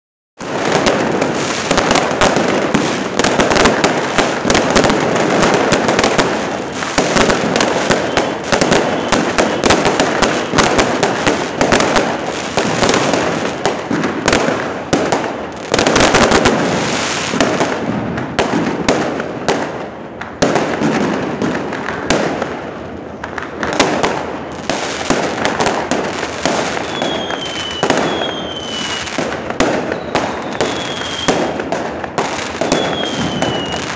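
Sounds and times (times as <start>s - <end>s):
fireworks bangs and crackles: 0.4s - 33.9s
falling firework whistles: 4.1s - 10.7s, 26.4s - 33.9s.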